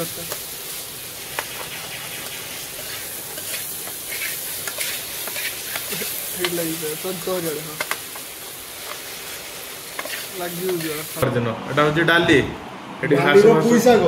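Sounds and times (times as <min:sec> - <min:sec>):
beans sizzling in a pan: 0:00.0 - 0:11.2
spoon scraping a pan: 0:02.7 - 0:06.6, 0:09.9 - 0:11.1.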